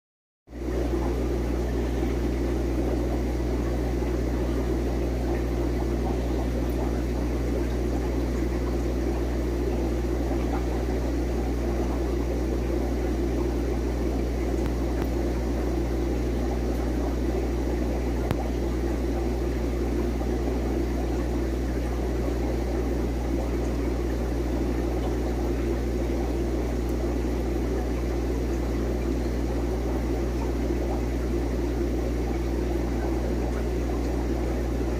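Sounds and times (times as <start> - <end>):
electrical hum with low drone: 0.5 - 34.9.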